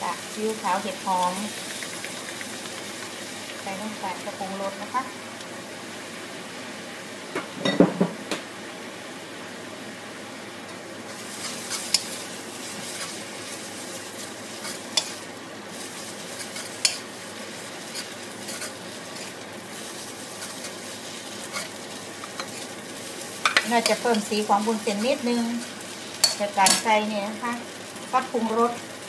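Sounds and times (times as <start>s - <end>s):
food sizzling in a wok: 0.0s - 29.0s
ladle stirring and scraping: 11.1s - 26.9s.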